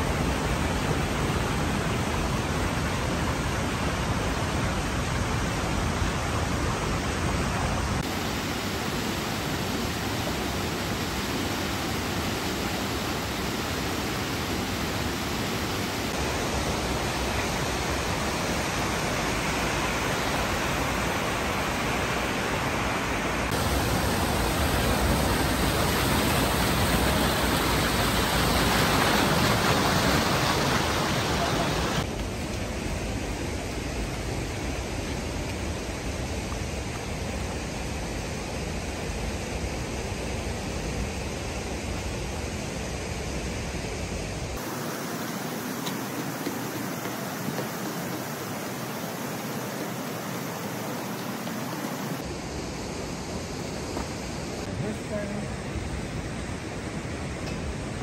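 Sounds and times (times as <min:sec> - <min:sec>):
stream rushing over rocks: 0:00.0 - 0:39.9, 0:40.6 - 0:58.0.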